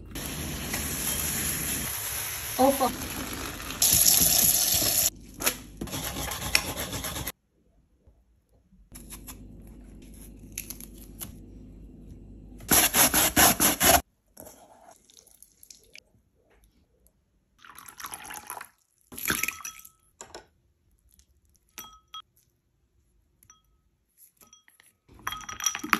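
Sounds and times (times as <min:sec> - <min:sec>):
grating food: 0:05.8 - 0:07.3, 0:12.7 - 0:14.0
ceramic and glass dishes clinking: 0:21.8 - 0:22.3, 0:24.5 - 0:25.9.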